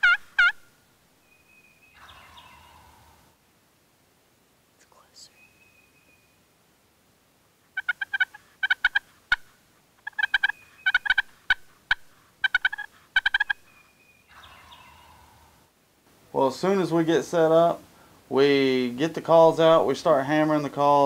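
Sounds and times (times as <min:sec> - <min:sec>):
turkey calling: 0:00.0 - 0:03.2, 0:07.7 - 0:15.6.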